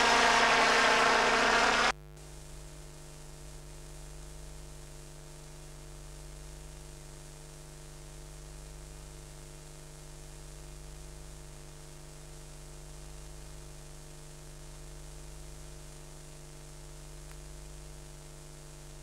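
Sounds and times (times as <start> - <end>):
constant hiss: 0.0 - 1.9
steady electrical hum: 0.0 - 1.9.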